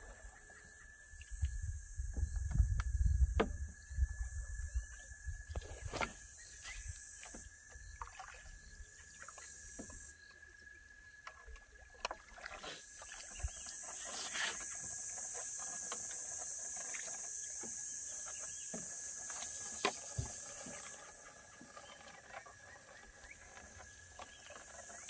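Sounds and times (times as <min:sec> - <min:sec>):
high-pitched hissing drone: 0:12.7 - 0:21.2.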